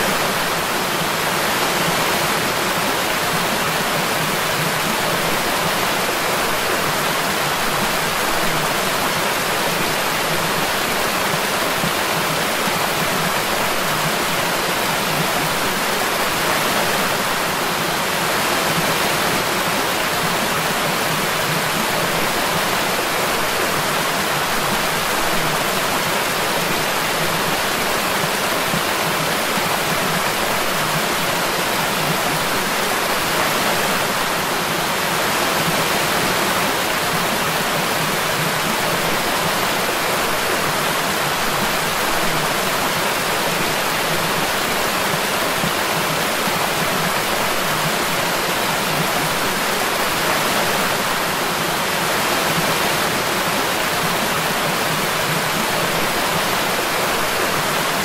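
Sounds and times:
creek water rushing: 0.0s - 58.0s.

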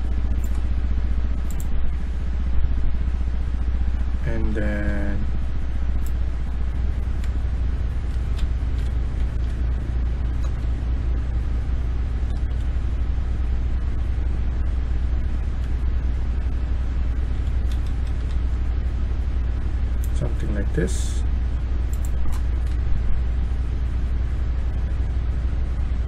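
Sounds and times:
low rumble with hiss: 0.0s - 26.0s
keyboard keys clicking: 17.4s - 18.4s.

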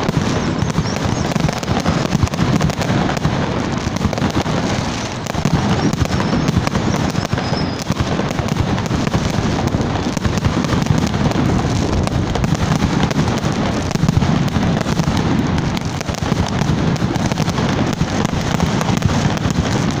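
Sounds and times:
fireworks crackling and bursting: 0.0s - 20.0s
faint high whistle: 5.7s - 7.9s.

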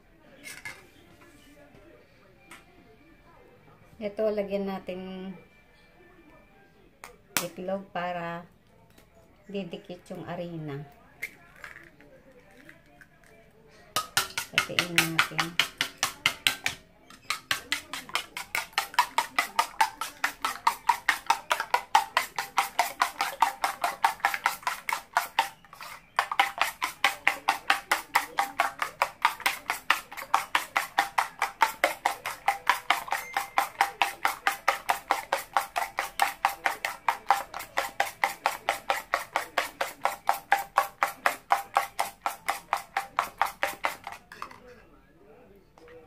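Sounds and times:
fork beating eggs in a bowl: 13.9s - 44.6s.

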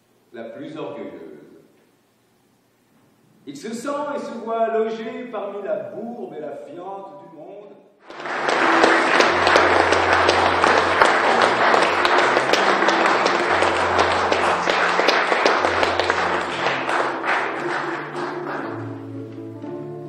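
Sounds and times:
audience applauding: 8.0s - 19.6s
music with low held notes: 8.5s - 20.0s.

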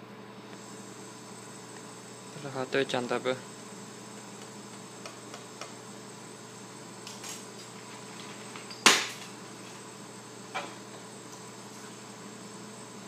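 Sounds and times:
water bath humming: 0.0s - 13.0s.

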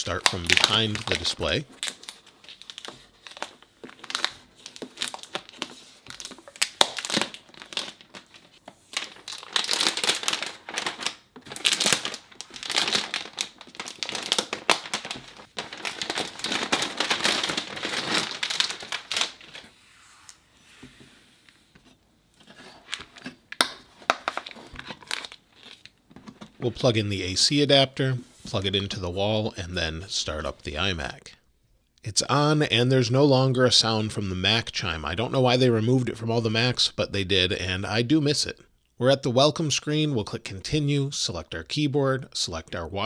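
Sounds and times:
plastic wrap crinkling: 0.0s - 19.8s, 22.5s - 26.9s.

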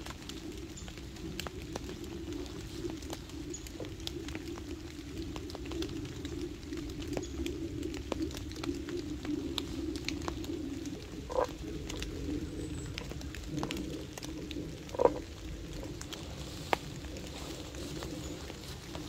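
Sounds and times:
raindrops ticking on canvas tarp: 0.0s - 19.0s.

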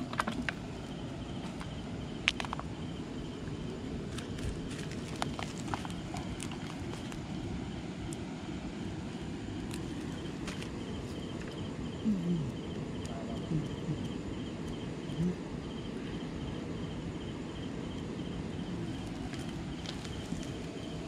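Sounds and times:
low background rumble: 0.0s - 21.0s
night insects chirping: 0.0s - 21.0s.

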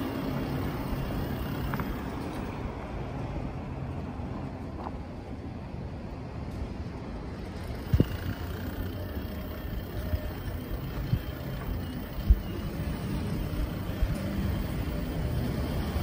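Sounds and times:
bicycle riding rumble: 0.0s - 16.0s.

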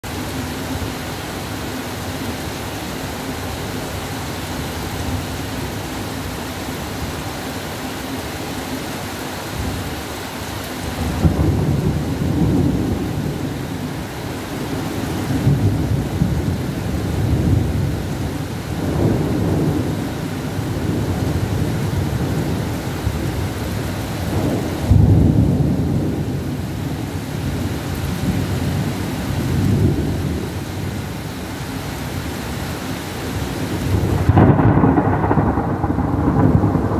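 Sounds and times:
pouring rain: 0.0s - 36.9s
thunder rumbling: 10.8s - 31.4s, 33.3s - 36.9s.

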